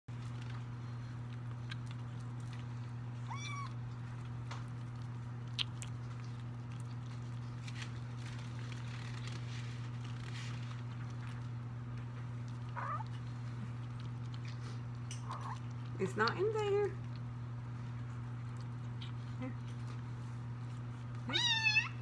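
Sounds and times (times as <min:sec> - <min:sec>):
steady low hum: 0:00.1 - 0:22.0
kitten meowing: 0:03.2 - 0:03.8, 0:21.3 - 0:22.0.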